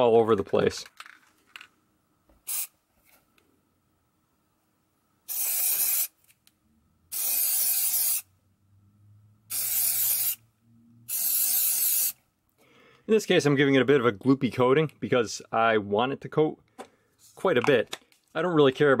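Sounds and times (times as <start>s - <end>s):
aerosol can spraying hiss: 2.4s - 2.7s, 5.3s - 6.2s, 7.1s - 8.3s, 9.5s - 10.4s, 11.1s - 12.2s.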